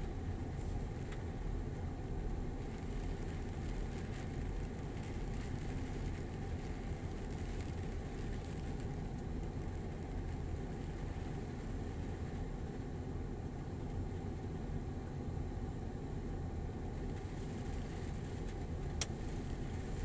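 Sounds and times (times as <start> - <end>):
patter of raindrops: 0.0 - 14.8, 16.6 - 20.0
rain falling: 2.2 - 12.8, 16.8 - 20.0.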